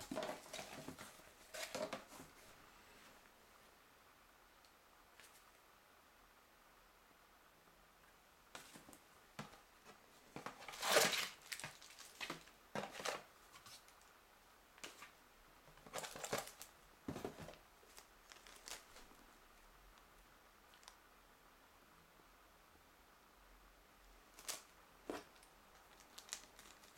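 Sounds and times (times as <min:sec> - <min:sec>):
paper and cardboard rustling: 0:00.0 - 0:02.5, 0:08.6 - 0:14.0, 0:15.8 - 0:19.1
plastic bag handled: 0:25.9 - 0:26.9.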